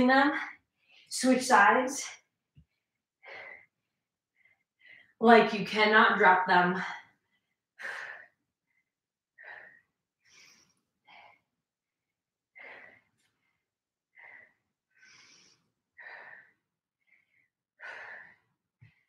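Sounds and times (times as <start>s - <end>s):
woman breathing heavily: 2.6s - 5.2s, 6.8s - 19.0s.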